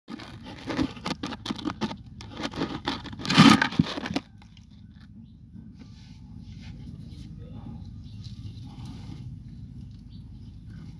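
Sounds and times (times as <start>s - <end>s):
rustling and crackling: 0.1s - 5.1s.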